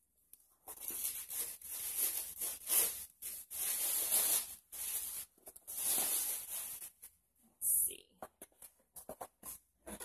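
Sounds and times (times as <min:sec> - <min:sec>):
paper rustling and crinkling: 0:00.6 - 0:07.2.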